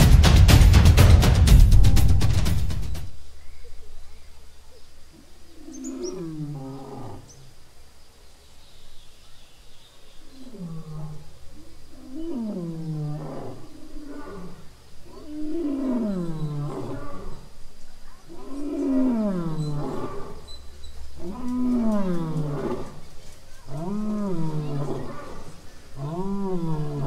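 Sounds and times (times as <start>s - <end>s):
lion roaring: 5.5s - 7.4s, 10.3s - 17.5s, 18.3s - 20.4s, 21.2s - 23.0s, 23.7s - 27.0s.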